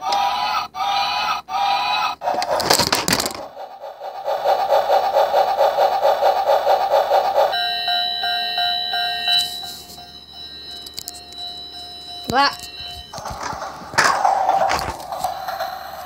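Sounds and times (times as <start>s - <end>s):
toy train electronic tones: 6.4s - 16.0s.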